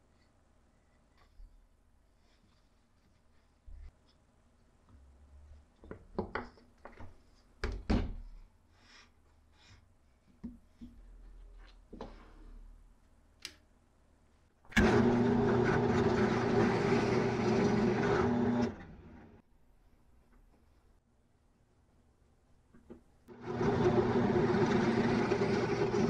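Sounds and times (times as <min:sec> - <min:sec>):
drill press boring wood: 0:14.8 - 0:19.4, 0:23.3 - 0:26.0.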